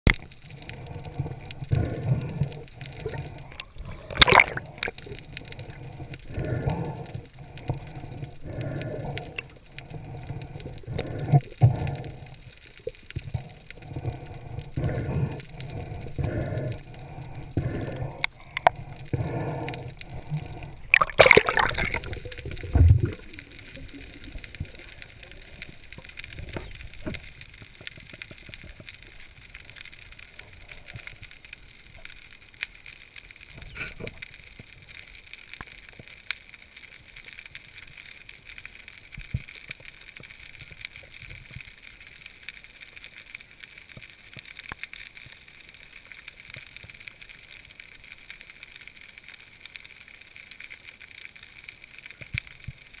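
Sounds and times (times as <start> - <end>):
small underwater clicks and crackles: 0.0 - 53.0
faint underwater hiss: 0.1 - 53.0
loud water noise: 3.8 - 4.9, 20.6 - 24.7.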